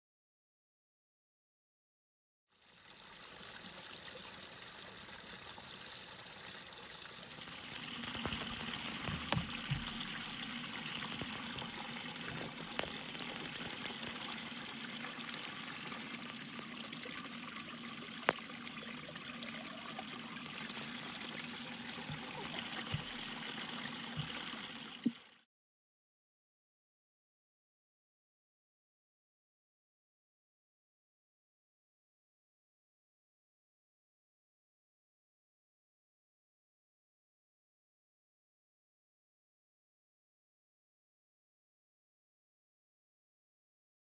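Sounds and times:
brook trickling over rocks: 0:02.6 - 0:25.4.

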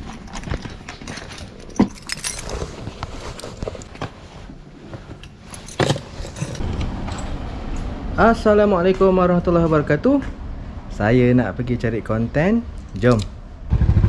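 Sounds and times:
keys jangling: 0:00.0 - 0:03.4, 0:05.2 - 0:07.4
handling knocks and rattles: 0:00.0 - 0:07.9.

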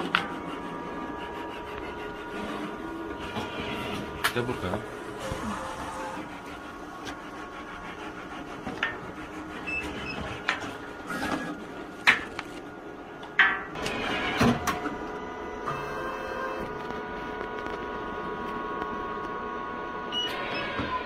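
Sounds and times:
cutting plotter humming: 0:00.0 - 0:21.0.

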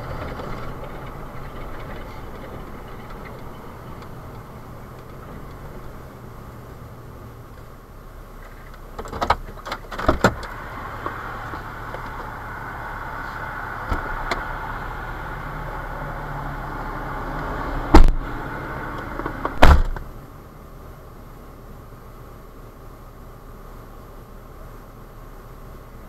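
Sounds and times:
truck cab hum: 0:00.0 - 0:26.0
heavy door thuds: 0:19.6 - 0:20.0.

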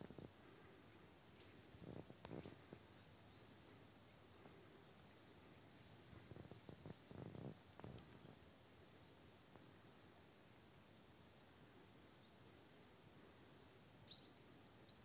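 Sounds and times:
soft rustles or crackles: 0:00.0 - 0:08.7
low hiss: 0:00.0 - 0:15.0.

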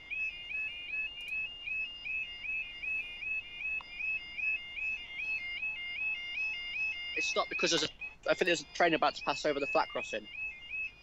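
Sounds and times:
level crossing warbling alarm: 0:00.0 - 0:11.0.

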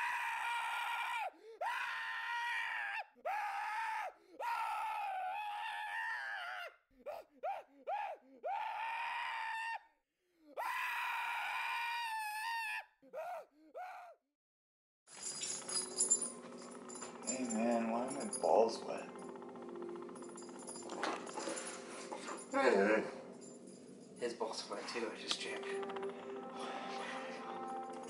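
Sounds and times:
person screaming: 0:00.0 - 0:14.2.

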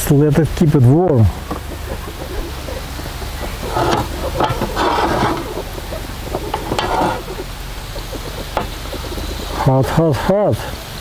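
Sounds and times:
pan scraping and rattling on grate: 0:01.4 - 0:10.0.

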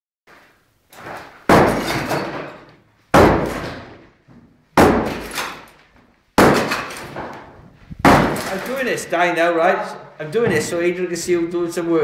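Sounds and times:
sledgehammer striking masonry wall: 0:01.0 - 0:04.1, 0:04.8 - 0:05.7, 0:06.4 - 0:08.9.

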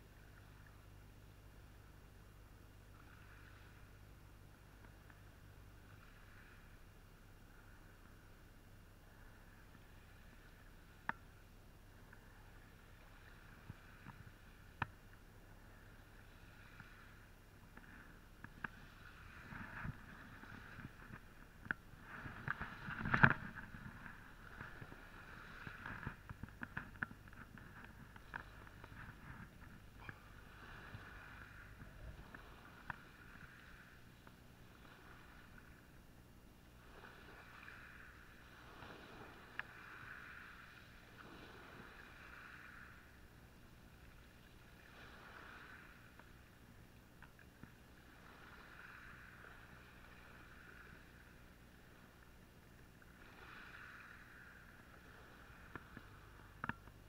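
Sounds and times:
hiss of rain and sea: 0:00.0 - 0:57.0
camera rubbing and knocking: 0:21.0 - 0:24.2.

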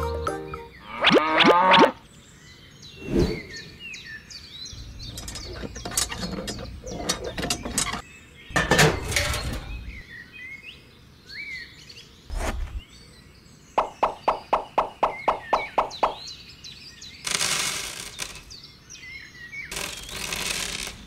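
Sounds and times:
small birds chirping: 0:00.0 - 0:21.0
plastic parts clicking and scraping: 0:04.8 - 0:09.8, 0:17.3 - 0:18.6, 0:19.7 - 0:21.0.

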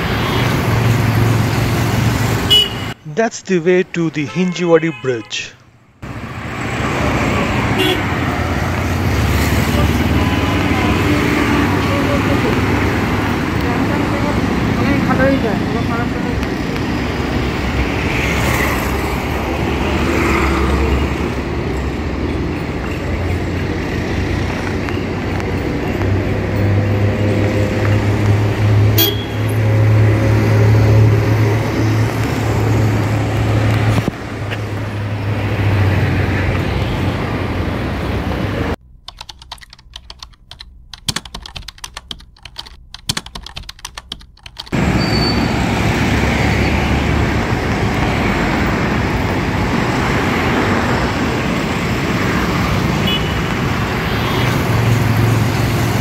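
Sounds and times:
road traffic noise: 0:00.0 - 0:56.0
small irregular clicks and taps: 0:39.1 - 0:44.8.

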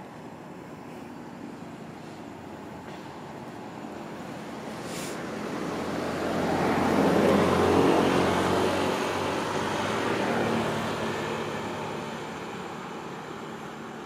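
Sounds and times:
vehicle engine passing by: 0:04.4 - 0:14.0.

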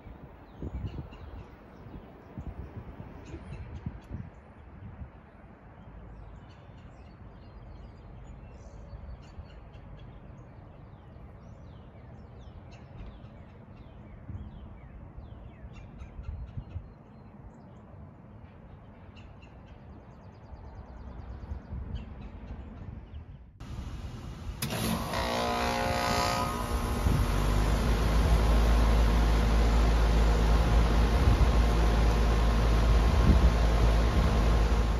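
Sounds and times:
heat pump unit humming: 0:23.6 - 0:34.9
louder steady noise: 0:23.6 - 0:34.9.

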